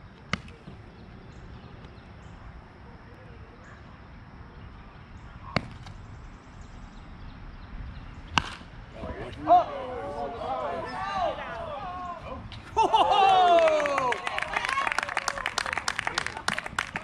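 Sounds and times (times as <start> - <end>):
faint distant voices: 0.1 - 17.0
sharp crack: 8.3 - 8.8.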